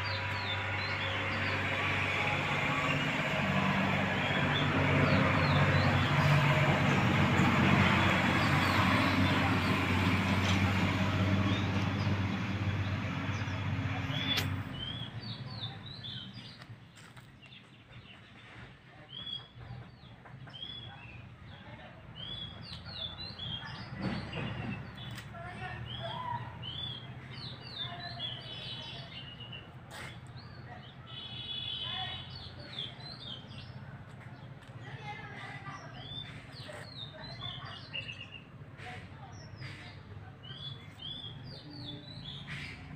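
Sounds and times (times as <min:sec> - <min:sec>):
vehicle engine hum: 0:00.0 - 0:18.2, 0:21.4 - 0:42.9
small birds chirping: 0:11.4 - 0:42.9
sharp click: 0:14.3 - 0:14.7.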